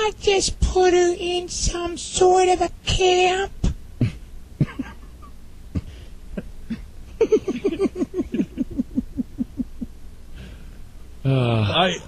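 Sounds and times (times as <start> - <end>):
man laughing: 4.0 - 9.9.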